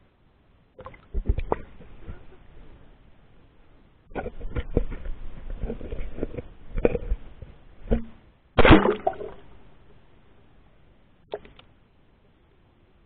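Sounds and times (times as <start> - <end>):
loud splash: 8.6 - 9.5.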